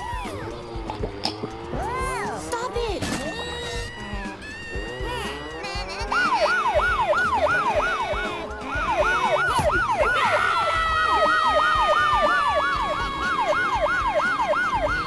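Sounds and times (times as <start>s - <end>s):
police siren yelping: 3.4s - 15.0s.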